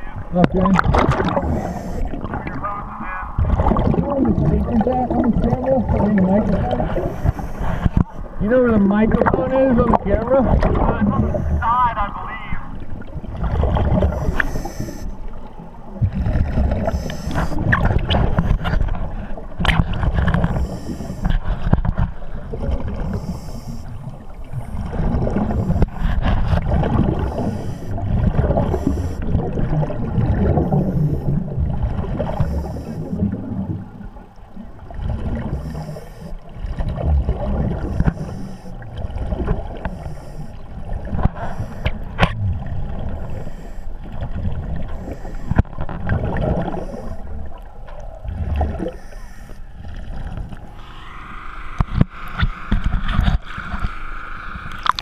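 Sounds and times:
air bubbling underwater: 0.4s - 2.6s, 3.4s - 7.1s.

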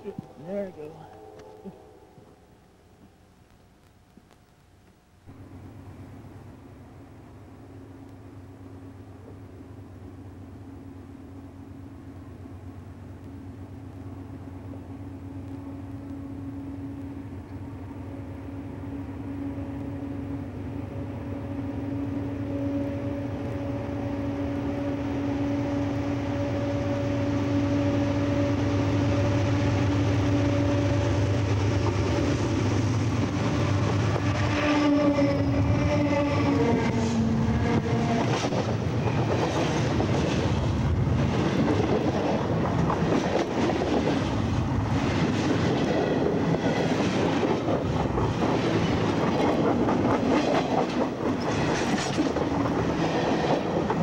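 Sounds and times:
diesel locomotive hum: 0.0s - 54.0s
train wheels clattering over rails: 37.8s - 54.0s.

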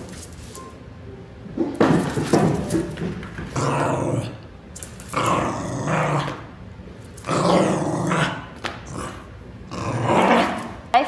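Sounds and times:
dog growling in play: 3.5s - 6.6s, 7.2s - 10.8s.

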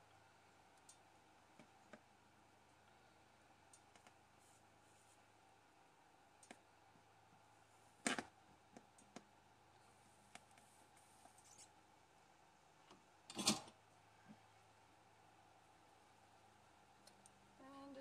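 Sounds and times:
light clicks and ticks: 0.1s - 2.1s, 3.7s - 4.2s, 6.4s - 6.6s, 8.0s - 9.3s, 17.0s - 17.4s.

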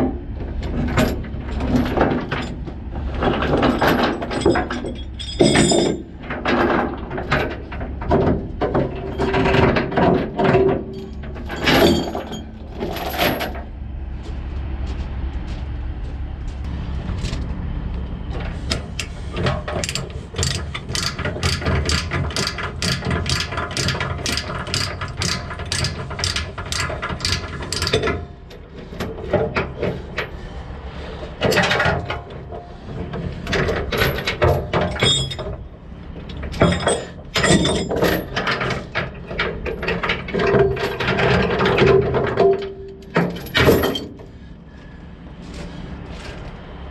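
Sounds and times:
chain clanking and rattling: 0.6s - 13.7s, 18.4s - 30.4s, 31.4s - 44.4s
ratchet clicking: 19.8s - 28.0s.

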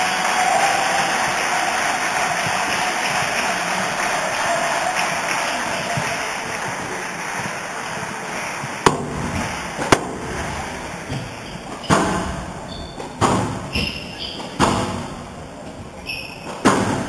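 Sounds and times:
crowd noise: 0.0s - 17.0s
squash ball hitting court walls: 5.0s - 17.0s.

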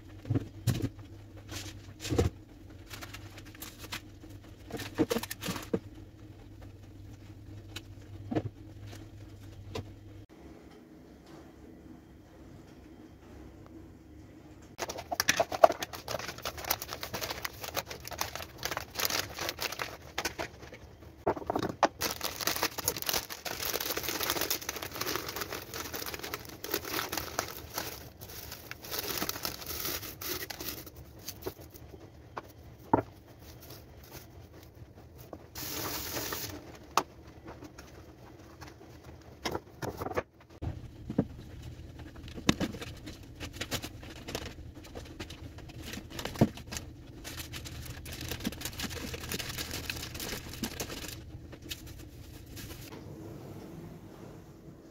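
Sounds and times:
dry leaves crackling: 14.8s - 20.2s, 22.0s - 31.7s, 45.8s - 52.9s
plastic packaging crinkling: 14.8s - 32.0s, 32.9s - 36.8s, 42.0s - 52.9s.

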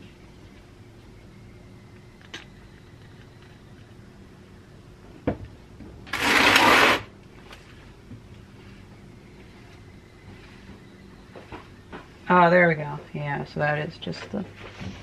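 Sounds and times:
motor harsh rasping burst: 6.1s - 7.1s.

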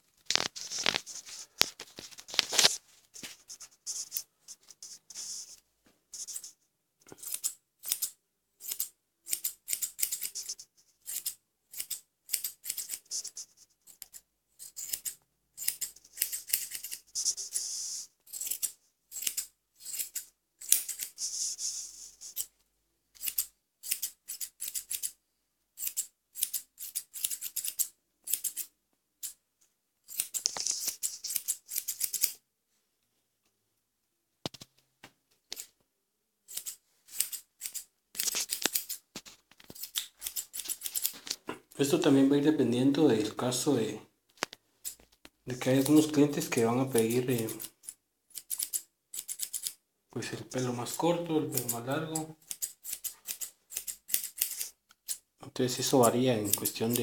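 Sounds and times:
grooming shears snipping fur: 0.3s - 5.6s, 6.2s - 6.6s, 7.2s - 22.5s, 30.1s - 32.4s, 36.5s - 41.5s, 51.5s - 55.2s.

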